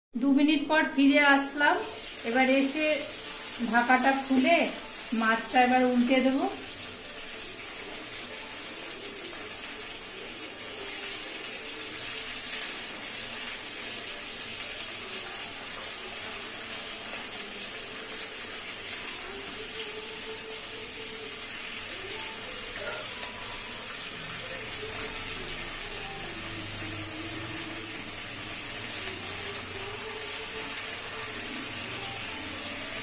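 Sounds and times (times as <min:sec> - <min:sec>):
fish sizzling in oil: 0:00.2 - 0:33.0.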